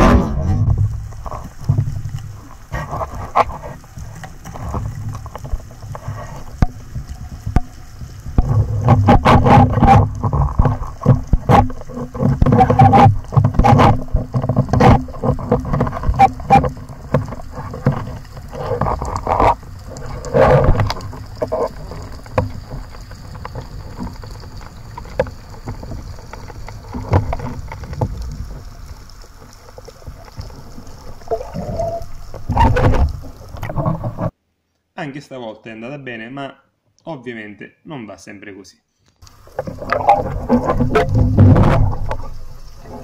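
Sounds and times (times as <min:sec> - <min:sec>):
underwater gear knocks and bumps: 0:00.0 - 0:28.7, 0:39.4 - 0:43.0
rushing water: 0:00.0 - 0:34.4, 0:39.2 - 0:43.0.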